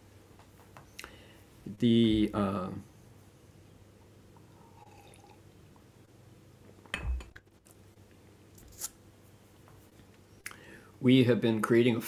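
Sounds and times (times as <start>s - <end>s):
sipping from a mug: 4.5s - 5.4s.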